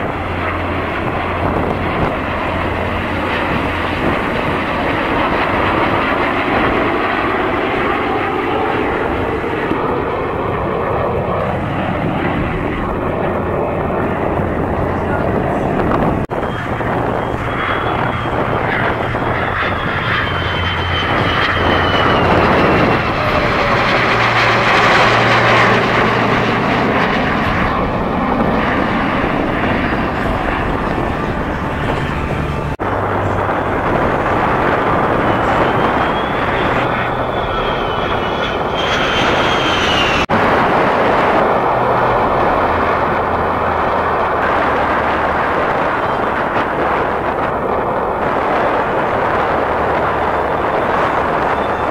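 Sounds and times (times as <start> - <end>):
jet engines flying past: 0.0 - 51.9
whining tone sliding in pitch: 16.4 - 26.2, 29.7 - 40.2.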